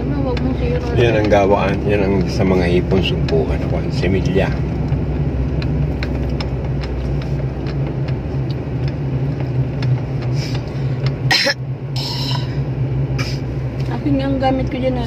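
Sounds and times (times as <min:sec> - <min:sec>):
car engine and tyres drone: 0:00.0 - 0:15.0
ticks and rattles in car cabin: 0:00.0 - 0:15.0
person coughing: 0:11.3 - 0:11.6.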